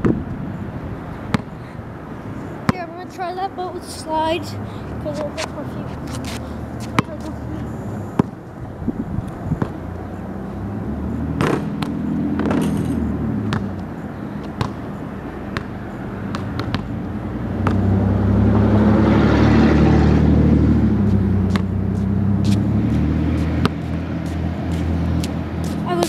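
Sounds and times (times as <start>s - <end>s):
basketball bouncing on concrete: 1.3s - 1.6s, 2.6s - 3.0s, 5.0s - 7.4s, 8.2s - 8.4s, 9.5s - 9.8s, 11.3s - 18.0s, 21.1s - 26.0s
vehicle engine running: 9.8s - 26.0s.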